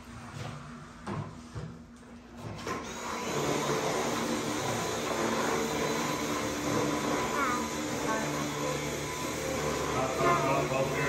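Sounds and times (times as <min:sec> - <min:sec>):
machine whirring: 0:02.6 - 0:11.0.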